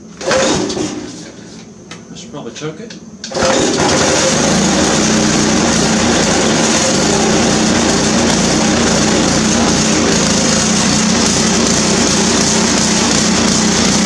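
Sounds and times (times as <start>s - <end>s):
small gas engine running: 3.3s - 14.0s.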